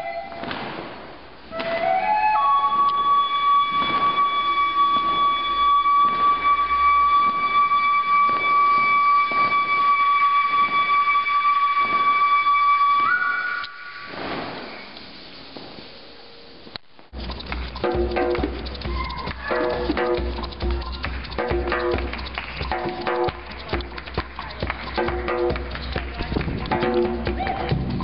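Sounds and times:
flute-like wind instrument: 0.0 - 0.5, 1.5 - 14.9, 18.7 - 21.0
soft beat: 17.1 - 28.0.

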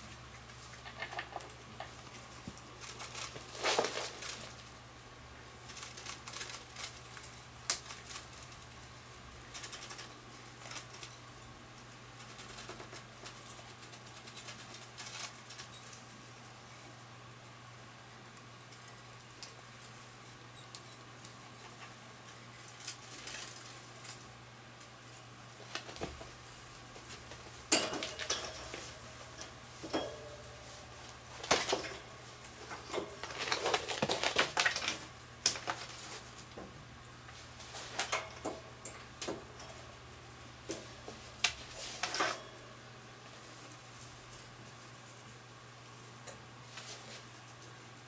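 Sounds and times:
wire cage rattling: 27.7 - 30.5.

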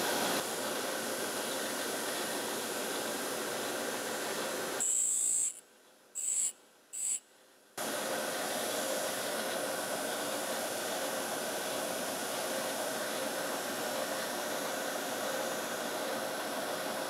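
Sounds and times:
drill bit grinding on wheel: 4.8 - 5.6, 6.2 - 7.2.

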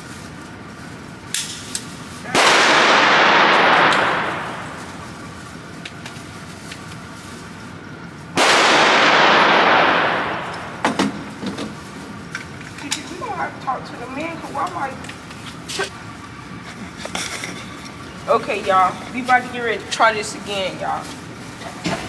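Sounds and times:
gunshots ringing indoors: 2.3 - 5.2, 8.4 - 11.3.

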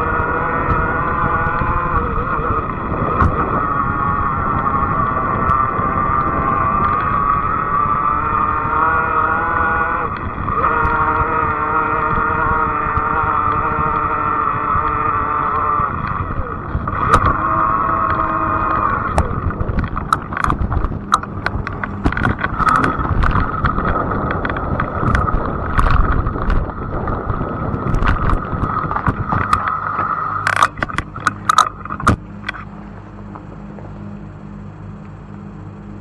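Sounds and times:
electric motor whine: 0.0 - 36.0
low rumble: 0.0 - 36.0
bike rattling clicks: 16.0 - 32.7.

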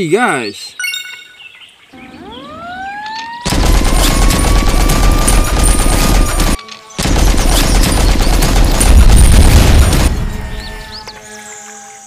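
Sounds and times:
rapid machine-gun fire: 3.5 - 10.7.

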